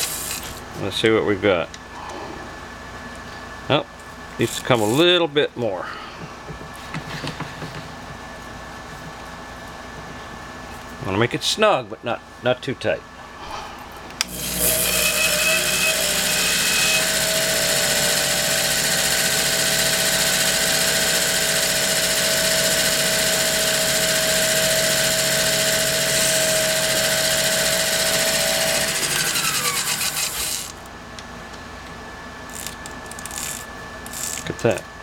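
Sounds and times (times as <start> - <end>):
lathe motor whining: 14.2 - 30.9.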